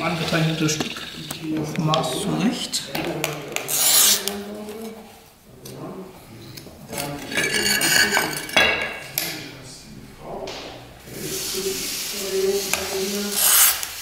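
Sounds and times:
glass cutter scoring glass: 3.6s - 4.3s, 12.7s - 14.0s
metal clinking on glass: 7.3s - 9.0s.

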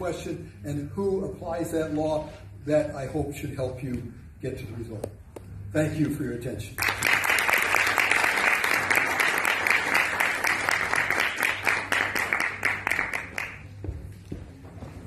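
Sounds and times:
audience applauding: 6.8s - 13.7s.

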